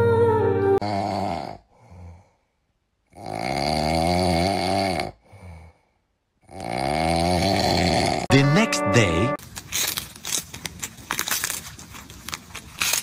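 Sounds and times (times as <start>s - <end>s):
loud snore: 0.8s - 2.3s, 3.1s - 5.8s, 6.4s - 8.3s.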